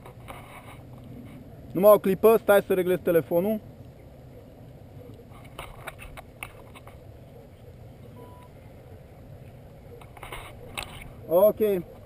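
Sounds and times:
short electronic beep: 8.2s - 8.5s.

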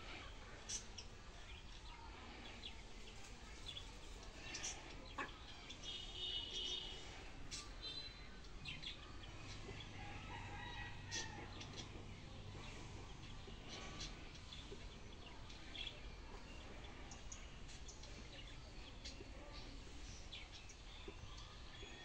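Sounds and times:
chickens clucking: 3.0s - 5.8s.

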